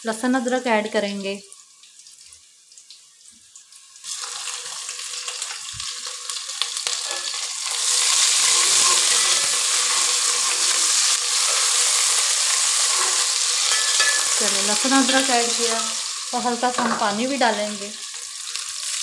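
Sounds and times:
paste sizzling in hot oil: 0.2 - 19.0
spoon stirring in pot: 8.2 - 14.4.

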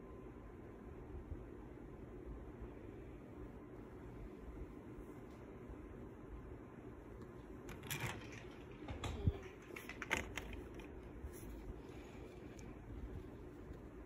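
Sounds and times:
low steady hum: 0.0 - 14.0
handling clicks and rustles: 7.2 - 14.0.

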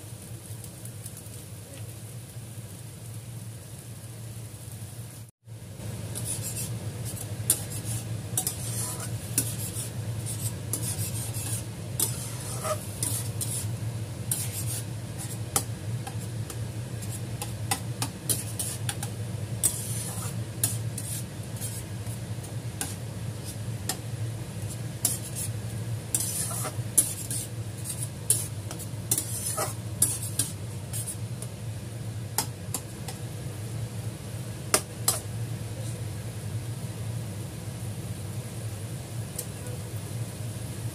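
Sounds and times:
meat sizzling in a pan: 0.0 - 40.9
metal spatula scraping a pan: 6.1 - 24.0, 24.6 - 31.5, 34.7 - 35.3.

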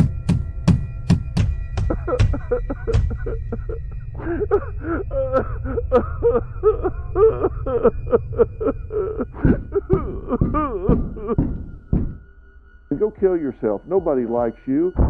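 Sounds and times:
steady low hum: 1.4 - 14.0
person making rapid vocal sounds: 9.4 - 12.1.

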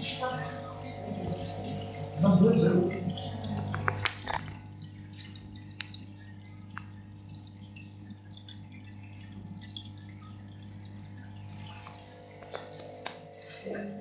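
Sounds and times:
aquarium water dripping and trickling: 0.0 - 14.0
low filter hum: 0.0 - 14.0
sharp clicks: 5.8 - 6.0.

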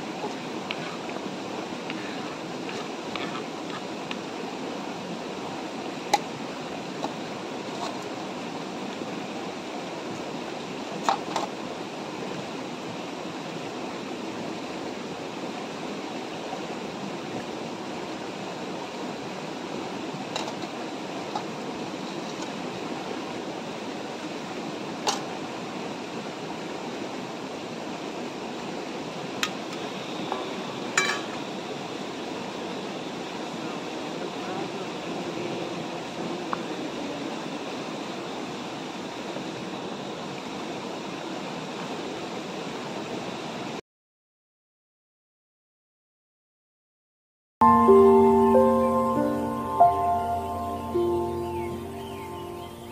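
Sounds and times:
river flowing over rocks: 0.0 - 43.3
metal cookware clinking: 31.0 - 31.4.

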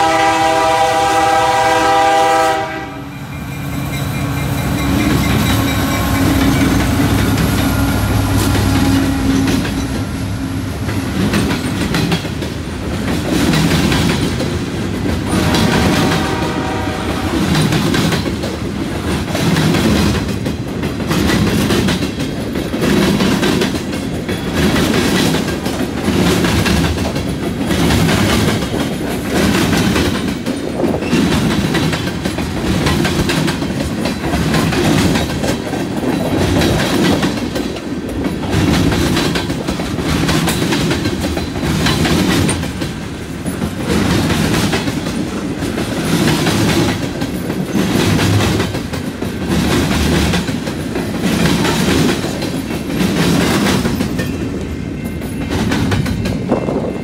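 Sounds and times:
train wheels clattering over track: 0.0 - 57.0.

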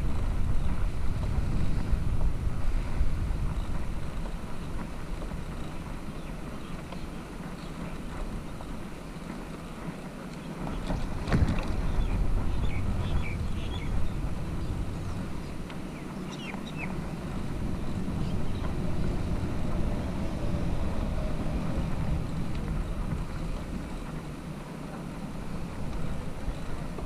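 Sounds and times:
tyres rumbling on road: 0.0 - 27.0
wind buffeting microphone: 0.0 - 27.0
bicycle knocking over bump: 10.6 - 13.6.

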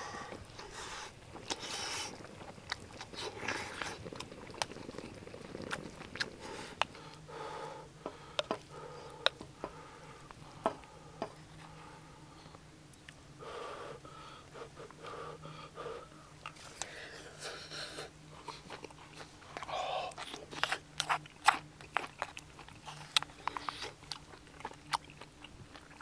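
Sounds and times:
person chewing food: 0.0 - 7.4, 16.3 - 26.0
low steady hum: 0.0 - 26.0
wet mouth sounds: 1.3 - 7.0, 16.4 - 26.0.

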